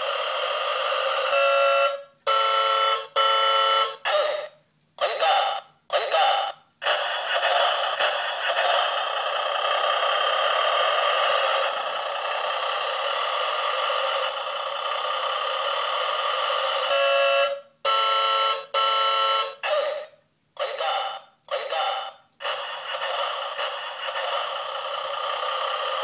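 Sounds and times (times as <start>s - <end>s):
truck air horn honks: 1.3s - 4.0s, 16.9s - 20.1s
rushing noise from small speaker: 5.0s - 17.0s, 19.6s - 26.0s.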